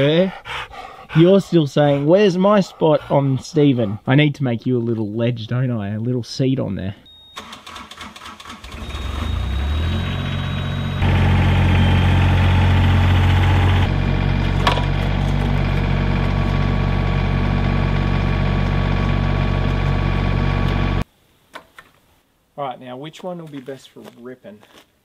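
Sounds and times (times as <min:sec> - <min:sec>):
excavator engine running: 0:07.2 - 0:21.0.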